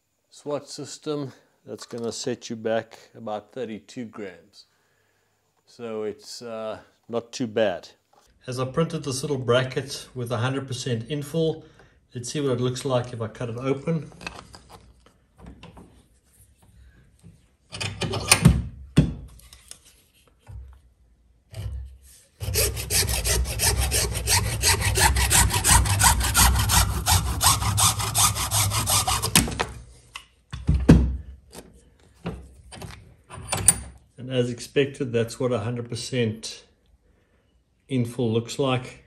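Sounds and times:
hacksaw cutting plastic: 22.4 - 29.8.

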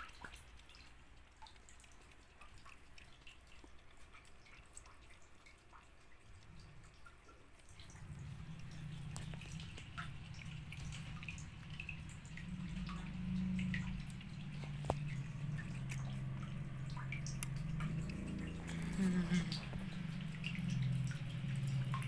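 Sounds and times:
cats lapping milk: 0.0 - 22.0
low steady rumble: 6.2 - 22.0.

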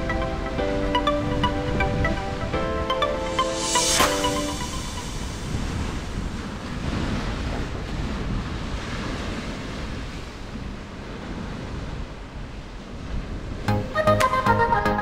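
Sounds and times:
wind rumbling on microphone: 0.0 - 13.7
waves washing onto sandy beach: 3.4 - 13.7.

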